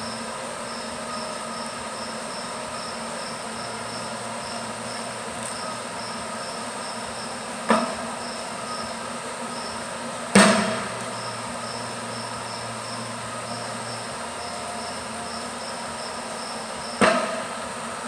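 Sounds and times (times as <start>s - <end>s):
shop hum: 0.0s - 18.0s
metal-on-metal strikes: 10.3s - 11.0s.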